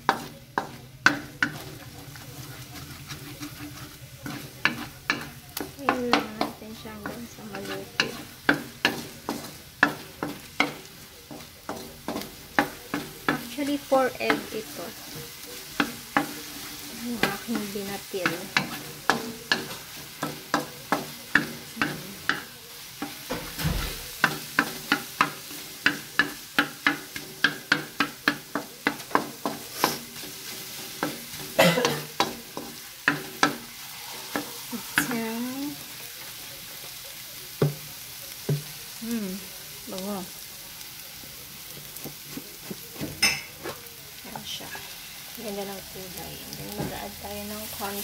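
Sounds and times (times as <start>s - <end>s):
wooden spatula scraping a wok: 0.0s - 37.8s, 41.5s - 48.0s
faint frying sizzle: 0.0s - 48.0s.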